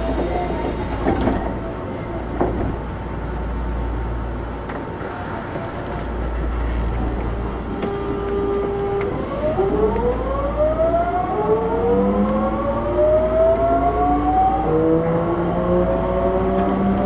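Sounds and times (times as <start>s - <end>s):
subway train inverter whine: 0.0s - 17.0s.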